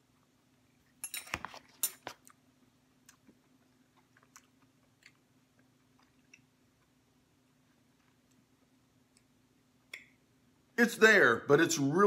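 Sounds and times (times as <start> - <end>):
person chewing crunchy food: 3.0 - 7.0.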